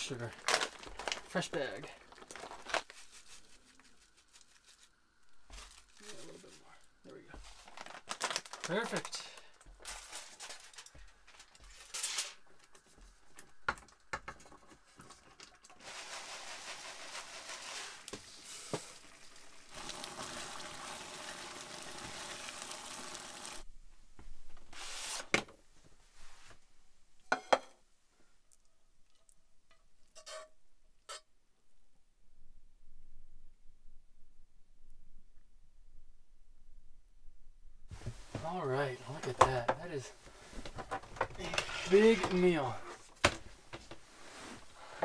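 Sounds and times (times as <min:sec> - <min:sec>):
curry sizzling in a frying pan: 0:15.7 - 0:23.7.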